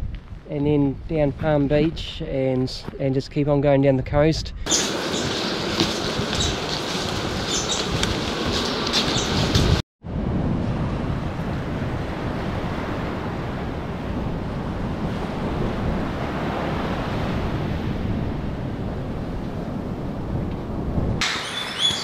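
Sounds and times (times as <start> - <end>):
wind buffeting microphone: 3.9 - 22.0
surf washing on beach: 10.4 - 19.6.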